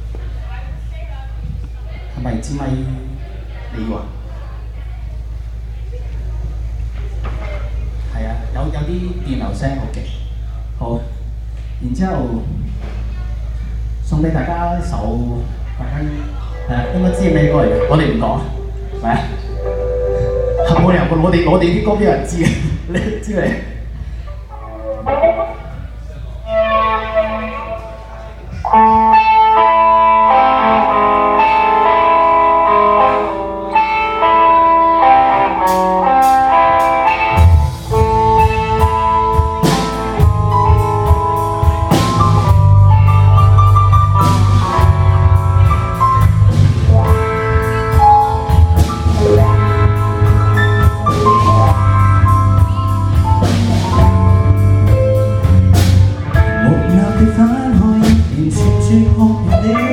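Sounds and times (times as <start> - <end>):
bass guitar: 0.0 - 59.9
guitar melody: 16.0 - 22.3, 24.1 - 59.9
drum kit beat: 16.6 - 20.9, 34.3 - 59.9.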